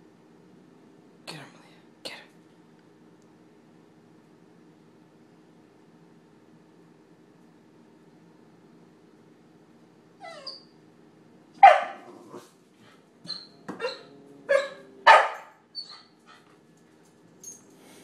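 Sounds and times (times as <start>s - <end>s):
puppy barking: 11.6s - 12.2s, 13.2s - 16.2s.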